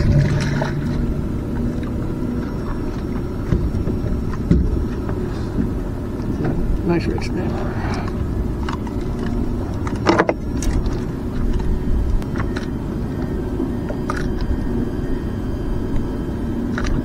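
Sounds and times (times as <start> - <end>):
wind rumble on microphone: 0.0 - 17.0
knocks and clicks handling fish: 2.9 - 6.6, 7.9 - 12.7.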